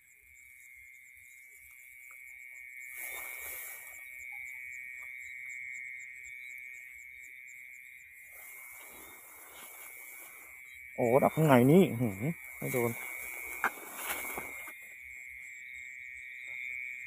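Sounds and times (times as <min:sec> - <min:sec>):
crickets trilling: 0:00.0 - 0:17.0
fast ticking insect call: 0:00.0 - 0:17.0
rice stalks rustling: 0:03.0 - 0:03.9, 0:08.3 - 0:10.6, 0:11.3 - 0:14.8.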